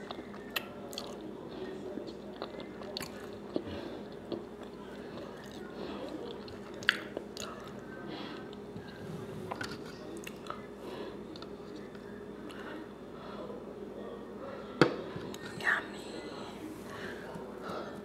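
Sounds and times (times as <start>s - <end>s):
faint steady hum: 0.0s - 18.0s
chewing mouth clicks and smacks: 2.3s - 7.8s.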